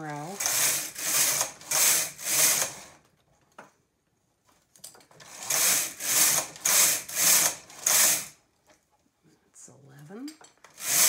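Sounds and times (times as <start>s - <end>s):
knitting machine carriage sliding: 0.1s - 3.1s, 4.8s - 8.4s, 10.6s - 11.0s.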